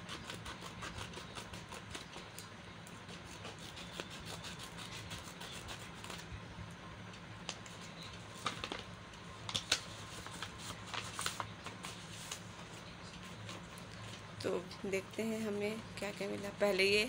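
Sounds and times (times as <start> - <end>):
steady low hum: 0.0 - 17.0
stiff paper crinkling and rustling: 7.4 - 14.3.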